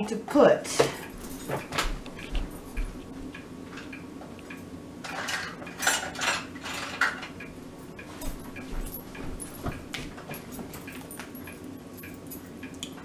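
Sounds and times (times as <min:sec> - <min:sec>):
utensils and dishes clattering: 0:00.7 - 0:03.9, 0:05.0 - 0:11.4.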